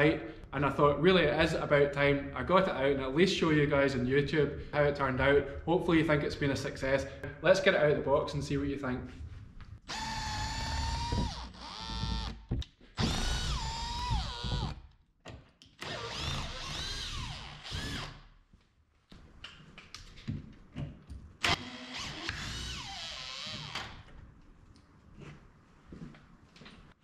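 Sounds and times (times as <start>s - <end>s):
drill motor whine: 9.9s - 12.4s, 13.0s - 14.8s, 15.8s - 18.2s, 21.5s - 23.9s.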